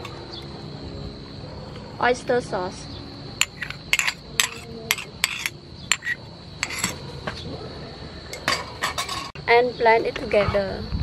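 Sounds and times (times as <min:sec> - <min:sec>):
utensils clinking on frying pan: 0:03.4 - 0:07.0, 0:08.4 - 0:09.4.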